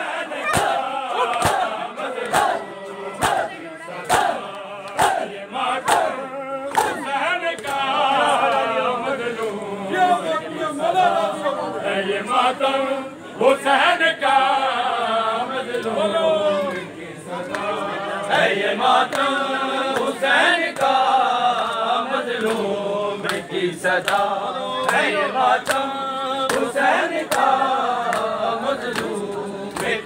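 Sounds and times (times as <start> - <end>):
crowd of men chanting: 0.0 - 30.0
hands slapping chests: 6.7 - 7.0.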